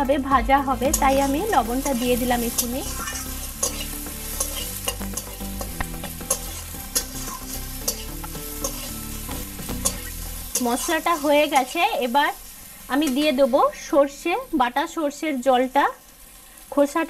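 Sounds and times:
masala sizzling in oil: 0:00.0 - 0:17.0
metal spatula scraping a pan: 0:00.8 - 0:11.9.

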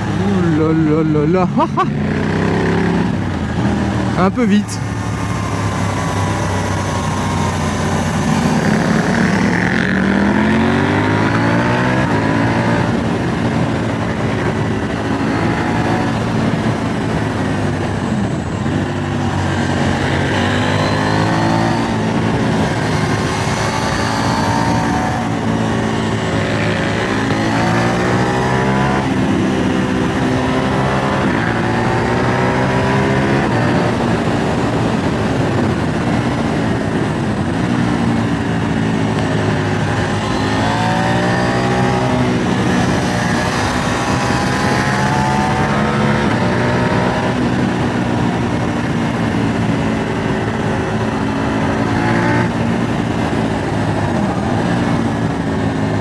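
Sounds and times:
motorcycle engine accelerating: 0:00.0 - 0:56.0
wind noise: 0:00.0 - 0:56.0.

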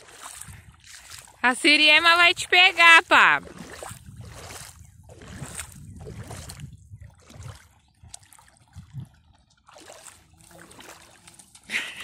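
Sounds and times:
wind rumble on microphone: 0:00.0 - 0:01.4, 0:03.3 - 0:09.4
small waves lapping at shore: 0:00.0 - 0:12.0.

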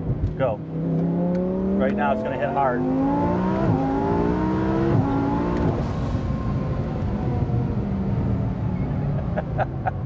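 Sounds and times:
engine at full throttle: 0:00.7 - 0:08.1.

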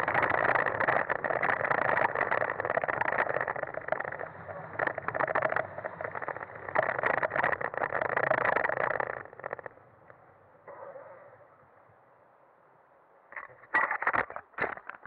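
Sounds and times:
tyres crackling on gravel: 0:00.0 - 0:09.8.

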